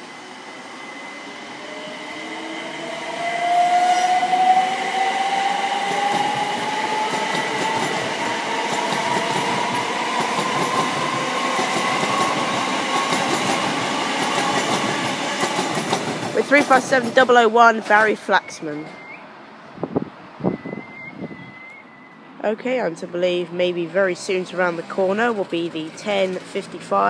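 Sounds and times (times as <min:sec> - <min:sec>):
train wheels on rails: 0:00.0 - 0:19.2.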